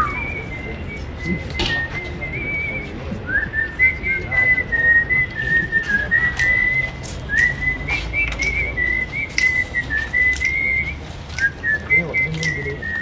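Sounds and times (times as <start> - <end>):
person whistling a slow tune: 0.0 - 13.0.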